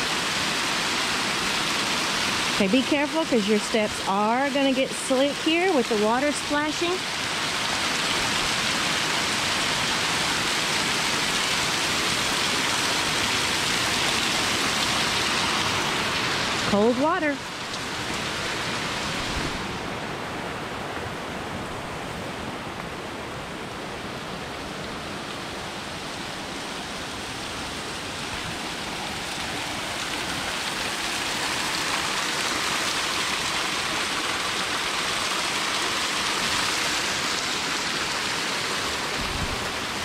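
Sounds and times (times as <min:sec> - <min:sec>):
waterfall splashing on rocks: 0:00.0 - 0:21.1, 0:24.6 - 0:40.0.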